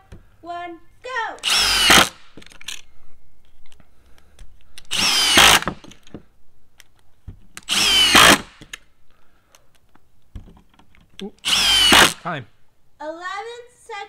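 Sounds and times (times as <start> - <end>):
impact driver driving screws: 1.4 - 2.8, 4.8 - 6.1, 7.6 - 8.8, 11.4 - 12.2.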